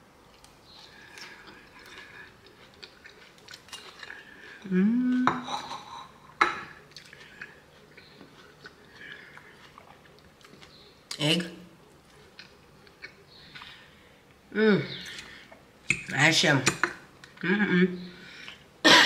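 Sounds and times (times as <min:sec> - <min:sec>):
person chewing: 0:00.2 - 0:11.2, 0:11.8 - 0:14.4
person humming mmm: 0:04.6 - 0:05.9.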